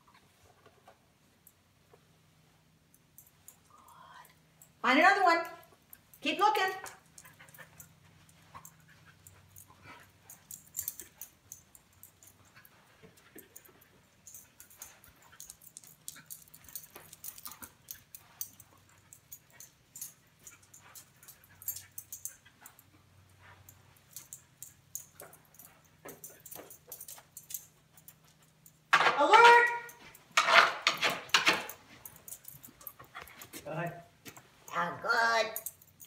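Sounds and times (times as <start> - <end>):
clicks of dog nails: 29.8 - 33.6.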